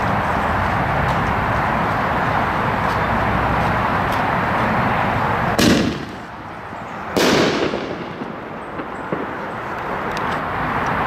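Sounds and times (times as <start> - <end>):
firework bang with echo: 5.6 - 6.2, 7.2 - 9.4.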